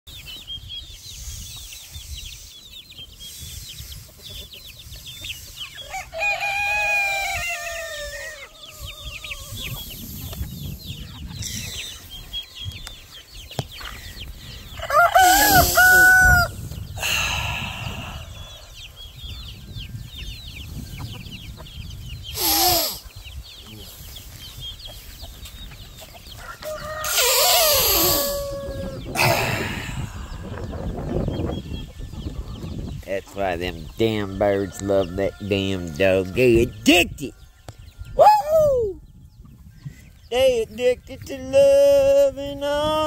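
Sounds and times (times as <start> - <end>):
chickens clucking: 0.1 - 38.2, 38.9 - 43.0
rooster crowing: 5.8 - 9.6, 14.8 - 16.5, 26.4 - 29.1.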